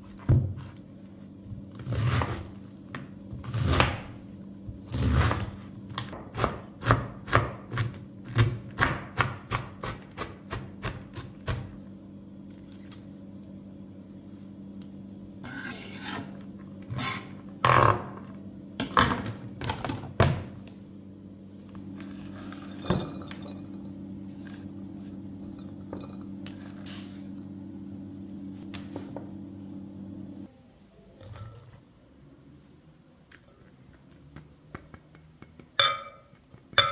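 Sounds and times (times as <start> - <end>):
steady low hum: 0.0 - 33.0
knife chopping cabbage on board: 4.9 - 11.7
knife scraping cutting board: 15.4 - 18.0, 26.4 - 27.4.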